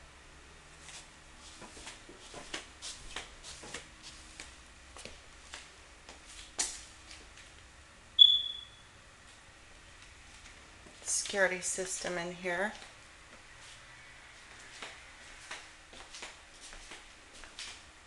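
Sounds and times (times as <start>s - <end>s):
footsteps on tile floor: 0.8s - 7.3s, 14.4s - 17.9s
high electronic beep: 8.2s - 8.9s.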